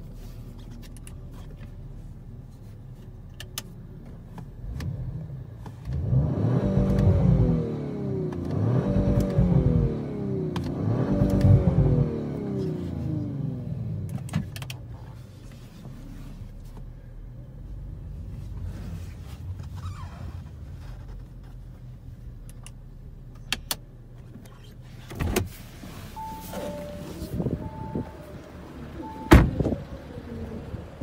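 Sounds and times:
car engine idling: 0:25.6 - 0:31.0
short electronic beeps: 0:26.2 - 0:28.2.

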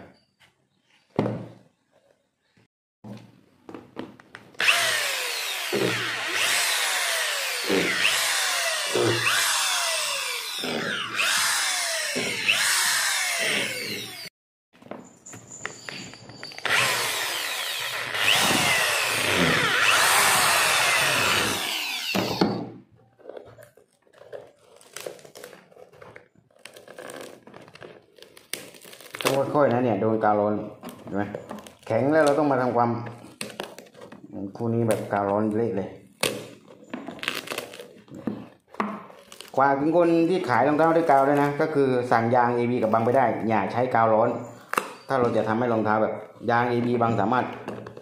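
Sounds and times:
electric drill running: 0:04.6 - 0:14.3, 0:16.6 - 0:22.6.

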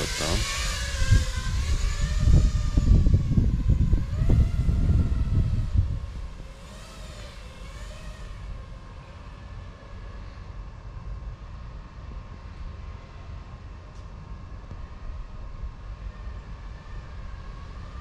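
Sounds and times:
low gusty rumble: 0:00.0 - 0:07.6
racing drone motors whining: 0:00.0 - 0:18.0.

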